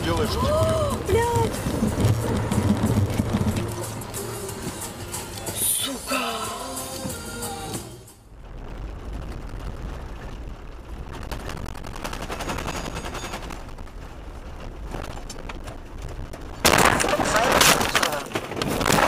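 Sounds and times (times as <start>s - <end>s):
car road rumble: 0.0s - 19.0s
gravel crackling against car: 0.0s - 19.0s.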